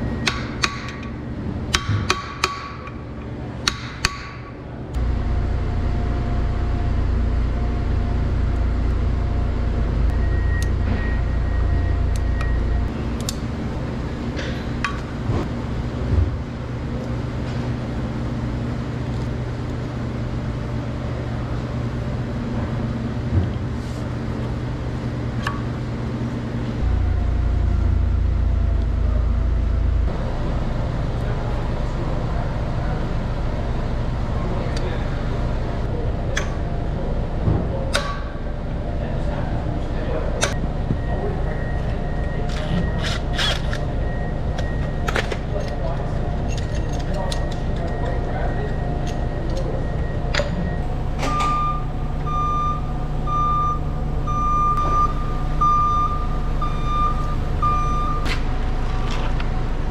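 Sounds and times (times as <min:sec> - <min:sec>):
forklift running: 0:00.0 - 0:59.9
faint steady whine: 0:26.1 - 0:59.9.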